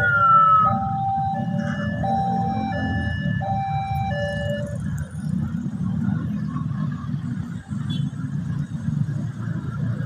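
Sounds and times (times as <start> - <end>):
level crossing warning alarm: 0.0 - 4.9
motorcycle and car engines: 0.0 - 10.0.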